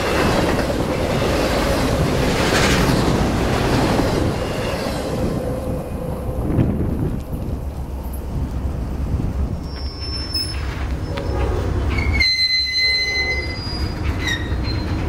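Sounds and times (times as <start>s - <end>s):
train wheels rumbling on rails: 0.0s - 15.0s
train wheel squeal: 4.2s - 5.3s, 9.6s - 15.0s.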